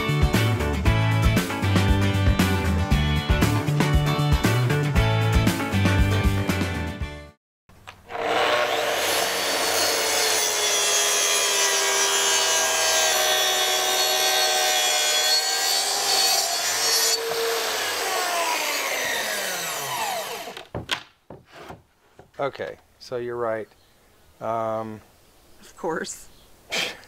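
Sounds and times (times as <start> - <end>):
music: 0.0 - 7.4
circular saw cutting wood: 8.0 - 20.6
saw blade winding down: 8.1 - 20.6.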